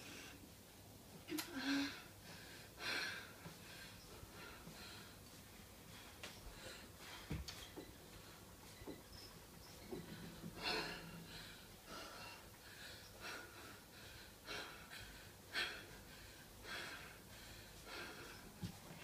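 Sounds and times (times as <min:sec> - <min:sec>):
woman breathing hard: 0:01.5 - 0:07.4, 0:09.9 - 0:18.8.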